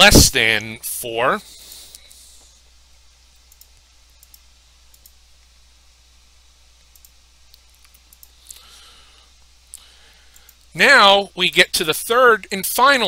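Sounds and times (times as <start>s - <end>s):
low electrical hum: 0.0s - 13.0s
faint computer mouse clicks: 3.4s - 5.2s, 6.9s - 8.6s, 10.3s - 10.7s.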